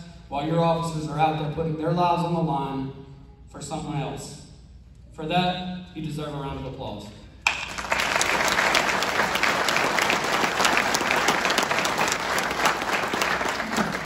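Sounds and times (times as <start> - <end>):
audience applause: 7.5 - 14.0.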